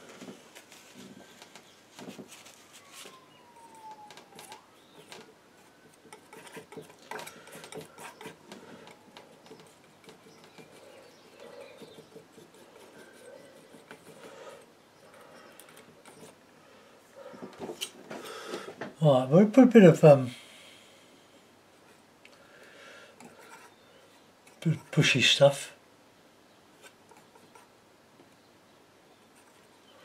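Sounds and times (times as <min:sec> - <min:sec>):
palette knife tapping and scraping: 0:04.3 - 0:14.4.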